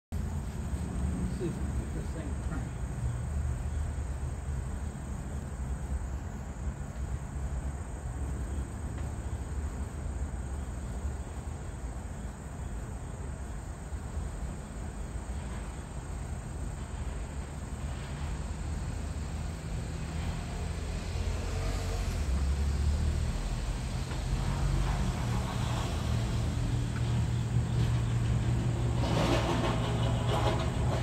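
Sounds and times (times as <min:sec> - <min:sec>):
insects droning: 0:00.2 - 0:31.0.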